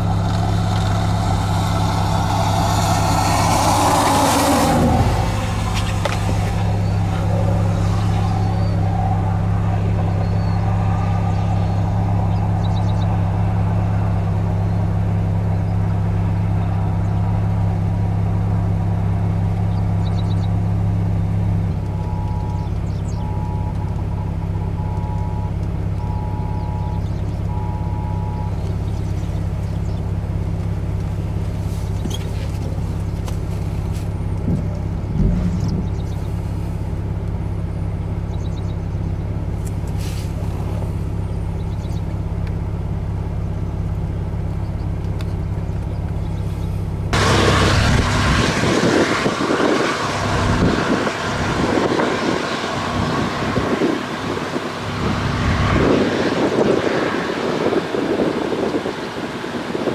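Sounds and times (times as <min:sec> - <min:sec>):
vehicle engine idling: 0:00.0 - 0:59.9
short electronic beeps: 0:21.9 - 0:23.8, 0:24.7 - 0:28.6
wind buffeting microphone: 0:34.4 - 0:36.4, 0:47.2 - 0:59.9.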